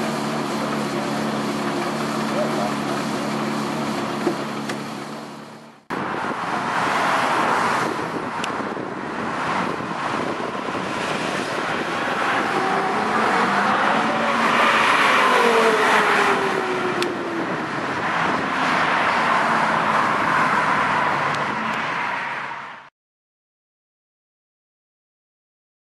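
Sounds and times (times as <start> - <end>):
road traffic hiss: 0.0 - 22.8
sports car accelerating past: 10.4 - 17.0.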